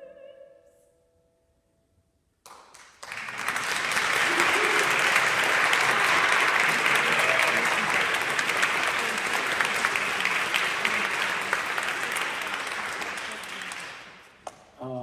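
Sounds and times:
audience applauding: 0:02.4 - 0:14.4.

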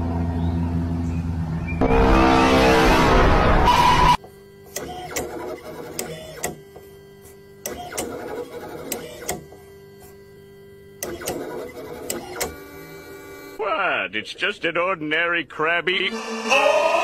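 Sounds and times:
robot motors whirring: 0:03.7 - 0:13.6.

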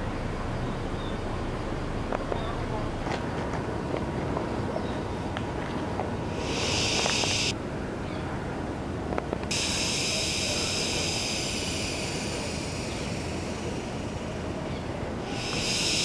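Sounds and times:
high insect drone: 0:06.2 - 0:07.6, 0:09.5 - 0:16.0
low rumble: 0:09.5 - 0:16.0.

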